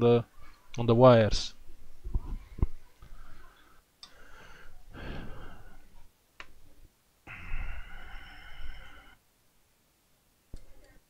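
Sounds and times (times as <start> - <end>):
man breathing: 3.1 - 6.0, 7.3 - 9.2.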